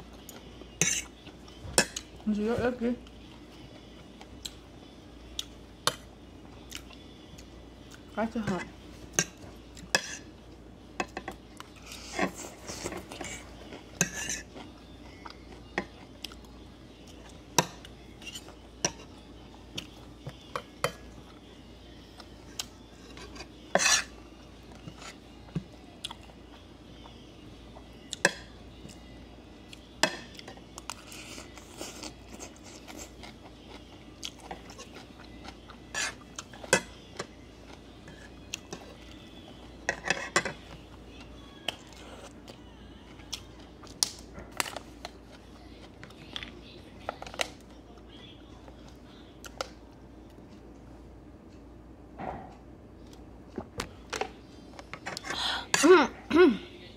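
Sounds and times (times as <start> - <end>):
utensils clinking on dishes: 12.0 - 14.6, 23.0 - 24.2, 39.9 - 40.8.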